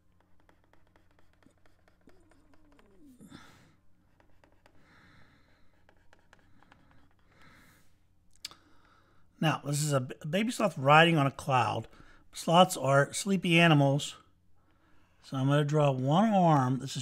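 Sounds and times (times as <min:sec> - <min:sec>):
stylus tapping on drawing tablet: 0:00.2 - 0:03.0
soft breath: 0:02.1 - 0:09.4.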